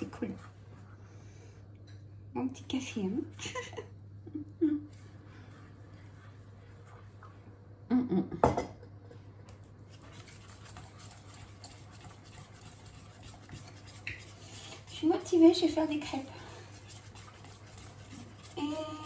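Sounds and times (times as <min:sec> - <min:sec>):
utensil scraping metal saucepan: 0:10.0 - 0:19.0.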